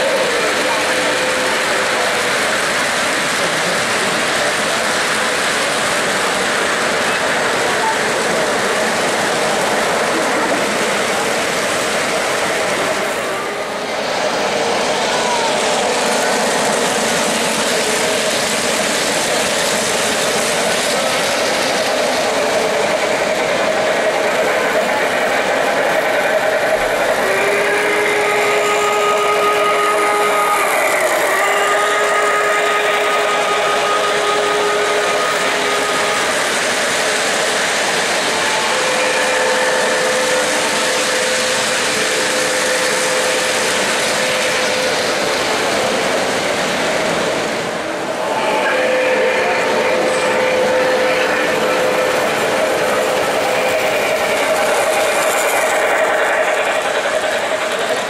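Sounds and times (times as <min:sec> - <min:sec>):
model train wheels rumbling: 0:00.0 - 0:58.0.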